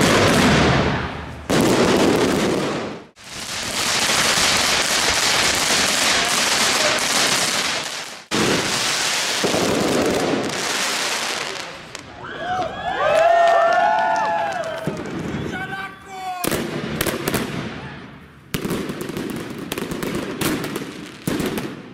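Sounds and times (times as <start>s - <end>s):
fireworks crackling hiss: 2.8s - 12.0s.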